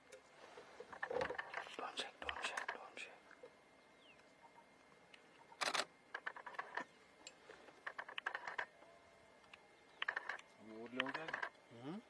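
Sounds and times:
camera shutters clicking: 5.6 - 6.8.

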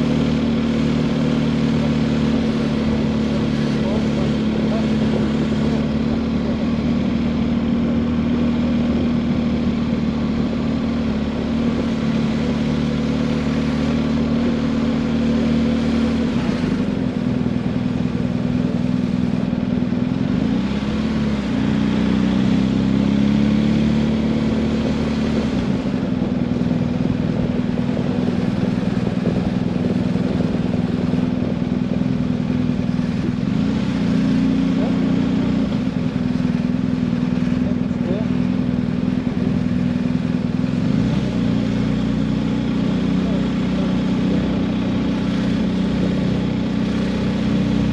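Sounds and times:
motorcycle engine running: 0.0 - 47.9.

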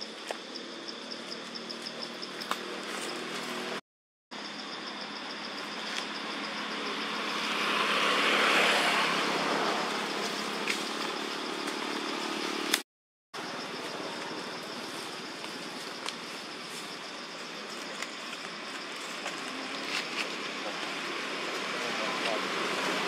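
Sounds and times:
vehicle passing by: 6.1 - 12.8, 19.5 - 23.0.

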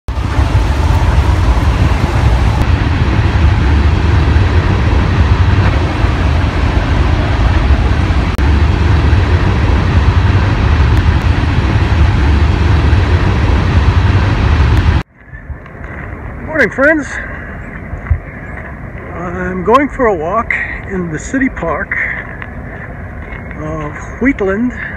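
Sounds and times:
freight train rumbling past: 0.0 - 17.7.

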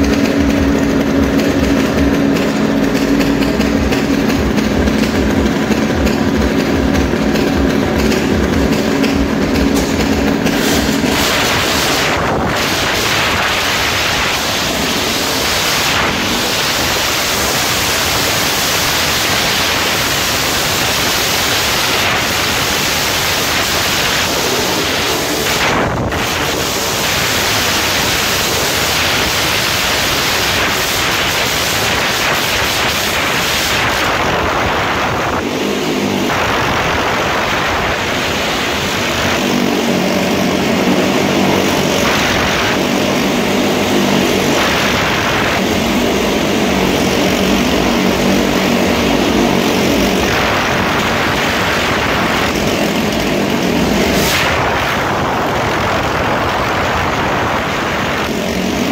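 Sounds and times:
motorcycle engines revving: 0.0 - 58.9.

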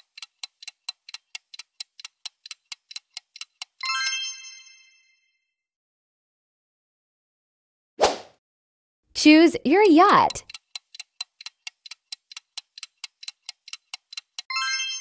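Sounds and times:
countdown timer ticking: 0.0 - 3.9, 9.2 - 15.0.

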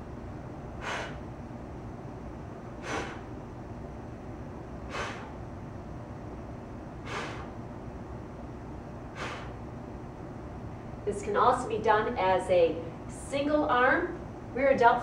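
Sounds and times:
low room hum: 0.0 - 15.0
woman exhaling in short puffs: 0.8 - 1.2, 2.8 - 3.3, 4.9 - 5.4, 7.1 - 7.5, 9.2 - 9.6.

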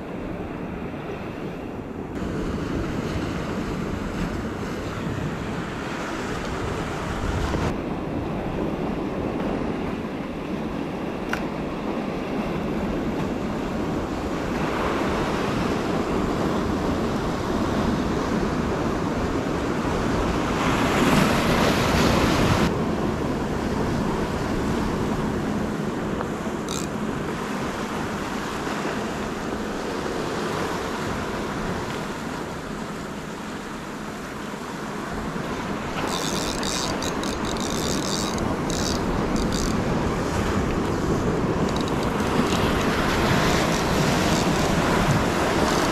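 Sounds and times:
surf washing against rocks: 10.7 - 45.9.

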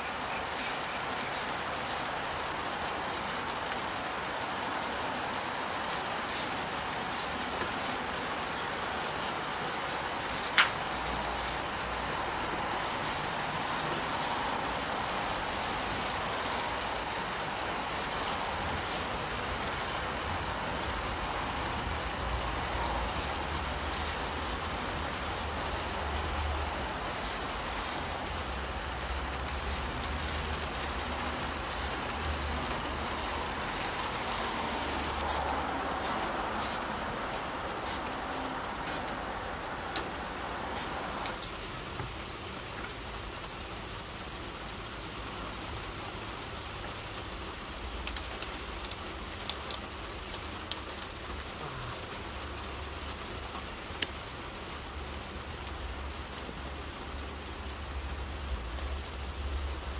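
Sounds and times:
spray paint hissing: 0.0 - 2.3, 2.9 - 3.9, 5.7 - 8.2, 9.8 - 37.0, 37.7 - 41.5
steady rain: 0.0 - 59.9.

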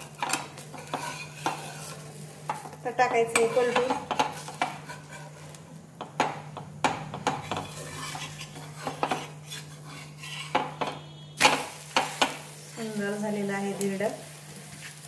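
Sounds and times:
steel spatula scraping metal pan: 0.2 - 2.0, 3.1 - 5.6, 7.4 - 12.3.

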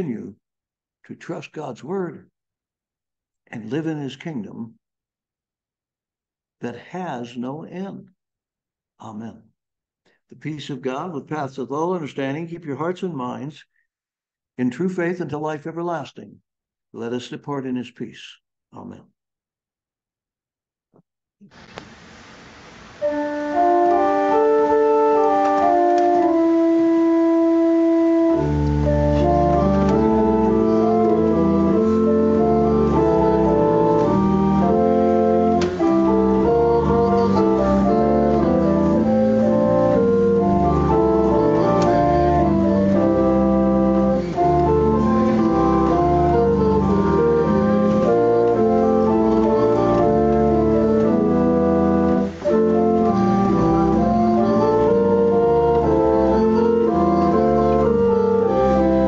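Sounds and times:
organ chords: 22.8 - 59.0.

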